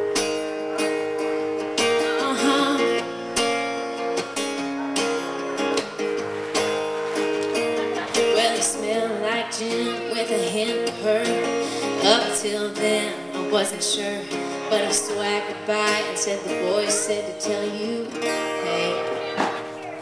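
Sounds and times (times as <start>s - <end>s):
acoustic guitar strumming: 0.0s - 20.0s
woman singing: 1.8s - 3.1s, 7.9s - 19.8s.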